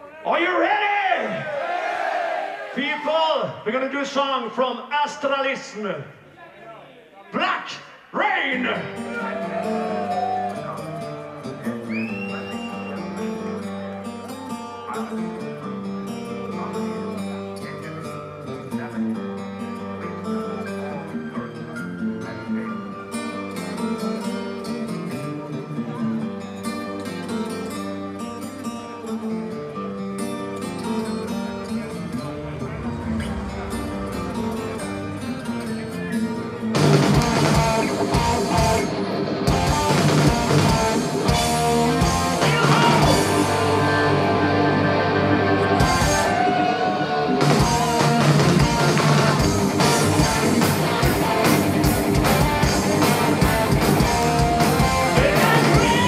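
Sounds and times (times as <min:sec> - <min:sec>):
heavy metal band playing live: 0:31.6 - 0:56.0.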